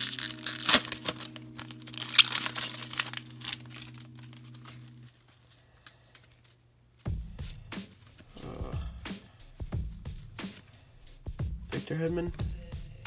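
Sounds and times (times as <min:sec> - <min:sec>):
foil wrapper crinkling: 0:00.0 - 0:06.8.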